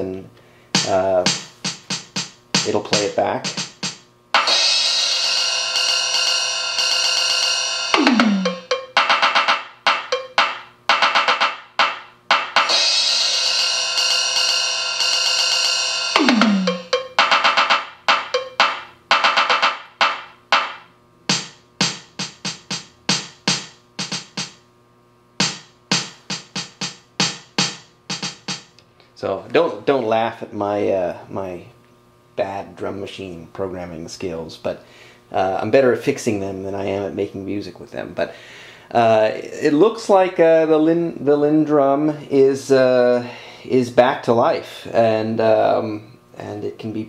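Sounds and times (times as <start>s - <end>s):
drum machine beat: 0.8s - 5.6s, 7.8s - 14.5s, 16.1s - 24.6s, 25.4s - 28.8s.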